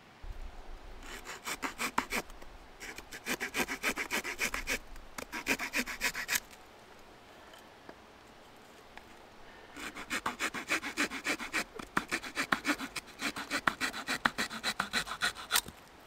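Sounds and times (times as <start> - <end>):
knife reamer rasping into wood: 2.8 - 6.4, 9.8 - 15.7.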